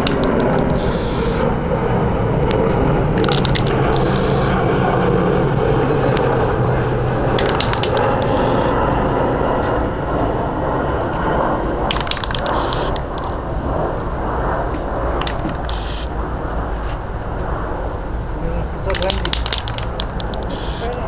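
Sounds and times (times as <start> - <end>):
loud background noise: 0.0 - 1.6, 2.3 - 9.0, 11.8 - 14.0, 15.0 - 16.2, 18.3 - 21.0
spray paint can hissing: 0.8 - 1.4, 3.9 - 4.5, 12.2 - 13.0, 15.6 - 16.1, 20.4 - 21.0
spray can rattling: 11.9 - 13.1, 15.2 - 16.0, 18.9 - 20.9.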